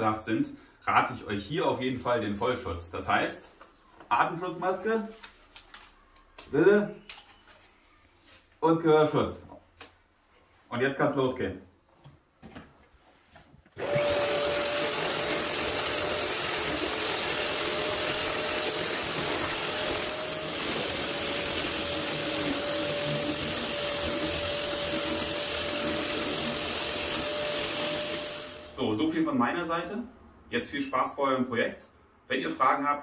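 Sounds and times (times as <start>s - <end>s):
wall miller whining: 13.7s - 28.9s
cutter grinding plaster hiss: 13.8s - 28.8s.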